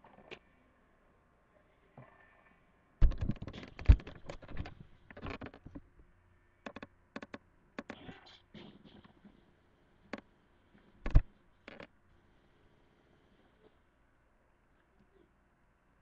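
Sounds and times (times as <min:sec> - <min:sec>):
loud thumps: 0:03.0 - 0:04.4
handling knocks and clicks: 0:03.0 - 0:05.9.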